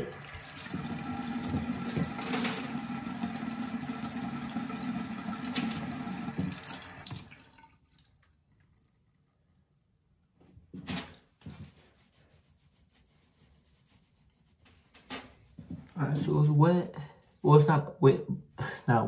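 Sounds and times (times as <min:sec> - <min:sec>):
water running from a tap: 0:00.0 - 0:09.0.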